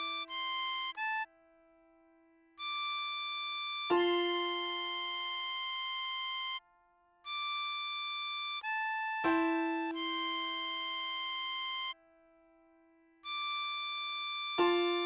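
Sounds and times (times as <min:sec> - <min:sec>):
harmonica melody: 0:00.0 - 0:01.4, 0:02.6 - 0:06.6, 0:07.2 - 0:12.0, 0:13.2 - 0:15.0
piano chords: 0:09.2 - 0:11.8, 0:14.6 - 0:15.0.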